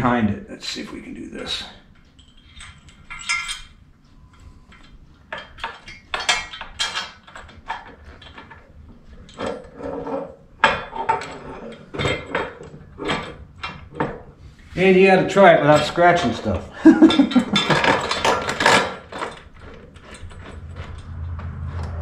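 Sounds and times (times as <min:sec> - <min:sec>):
metal clicks and clinks: 0:02.0 - 0:09.7, 0:17.0 - 0:21.3.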